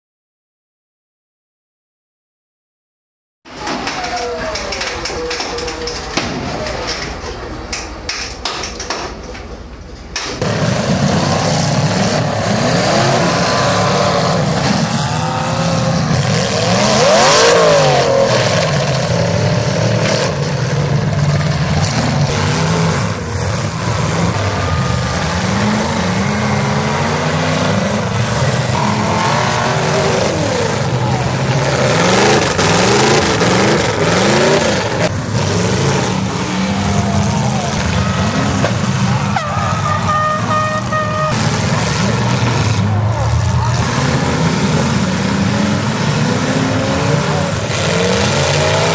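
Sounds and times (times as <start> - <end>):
cars crashing bangs: 3.5 - 48.9
car engines revving hard: 10.2 - 48.9.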